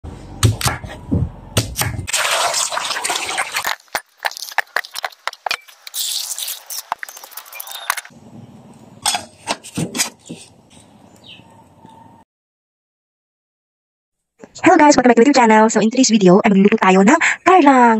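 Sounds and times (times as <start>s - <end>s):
knife chopping on wooden board: 0.4s - 1.0s
water pouring into pot: 2.1s - 3.7s.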